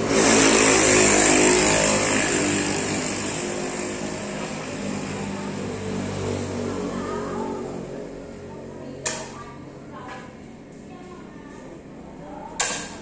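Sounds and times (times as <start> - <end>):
motorbike engine running: 0.0 - 8.8.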